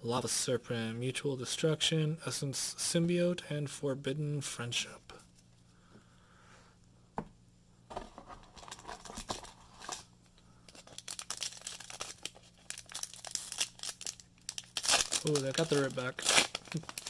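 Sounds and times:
foil wrapper tearing and crinkling: 10.7 - 17.0.

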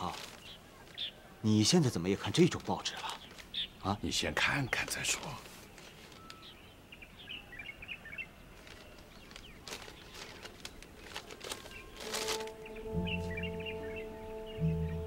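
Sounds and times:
newspaper rustling: 0.0 - 1.2, 2.1 - 3.7, 4.8 - 6.6, 8.4 - 13.6
small birds chirping faintly: 0.0 - 15.0
sustained music notes: 12.0 - 15.0.

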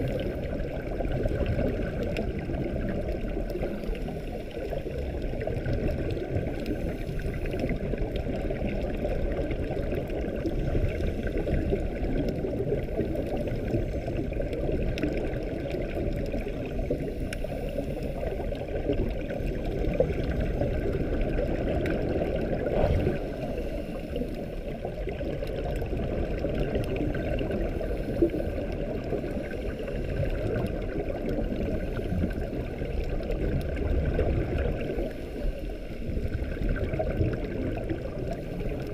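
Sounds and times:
underwater rush of water: 0.0 - 38.9
faint clicks: 10.0 - 20.4.

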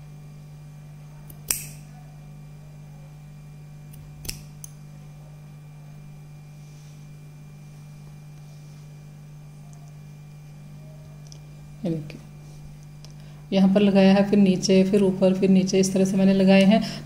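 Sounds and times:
steady low hum: 0.0 - 17.0
small blade clicks: 1.3 - 1.8, 3.9 - 4.8
scissors snipping yarn: 1.3 - 1.9, 3.9 - 4.8.

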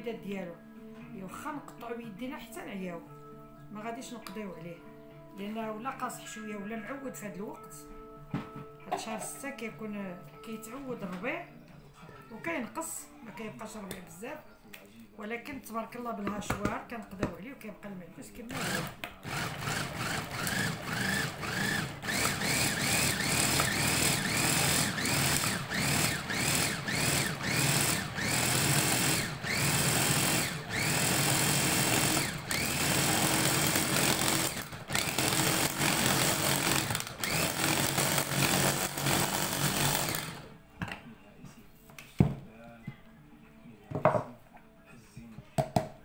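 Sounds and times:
electric chopper motor whine: 18.6 - 40.4.

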